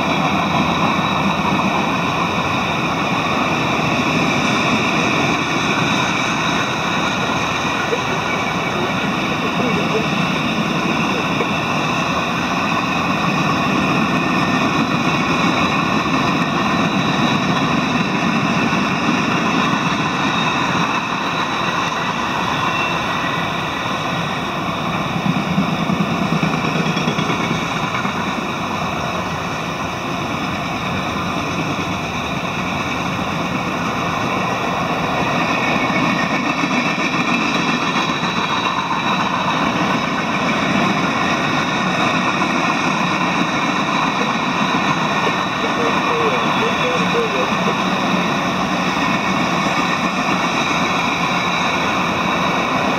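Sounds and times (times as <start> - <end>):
train wheels rolling on rails: 0.0 - 52.9.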